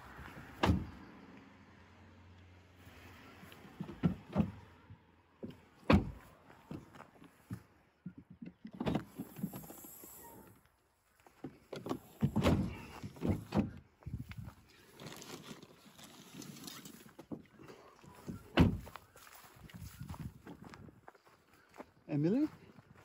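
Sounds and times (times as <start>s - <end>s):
car door shutting: 0.6s - 1.0s, 5.4s - 6.2s, 8.7s - 10.5s, 11.8s - 13.8s, 18.4s - 18.9s
footsteps: 11.0s - 23.0s.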